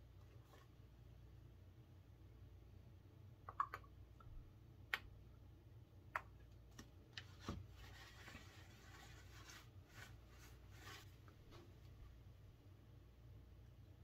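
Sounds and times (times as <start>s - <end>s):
paper towel rubbing wood: 7.4s - 11.7s.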